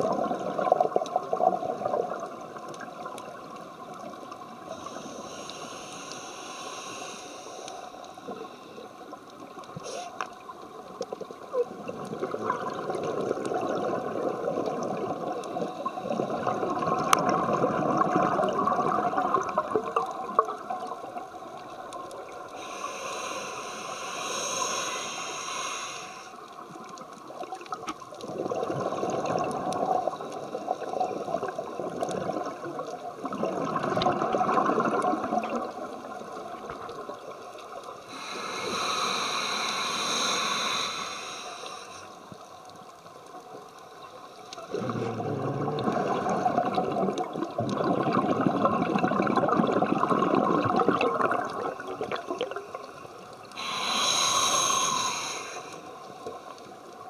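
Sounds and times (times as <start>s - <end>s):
bubbling exhalation underwater: 0.0s - 2.4s, 11.5s - 21.0s, 28.2s - 35.9s, 44.6s - 52.9s
regulator hissing inhalation: 4.7s - 8.8s, 9.8s - 10.3s, 22.5s - 26.5s, 38.0s - 42.3s, 53.5s - 56.1s.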